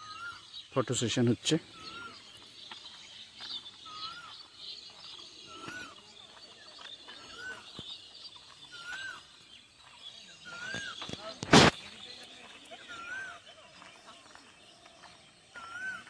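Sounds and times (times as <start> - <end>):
bird whistled call: 0.0 - 0.8, 1.7 - 13.6, 15.5 - 16.0
chorus of chirping birds: 0.0 - 16.0.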